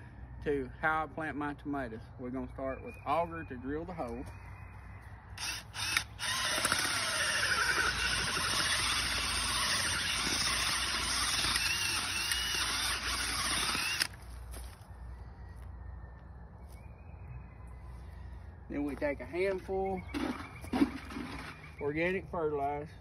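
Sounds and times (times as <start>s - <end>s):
cordless drill boring into soil: 5.4s - 14.2s.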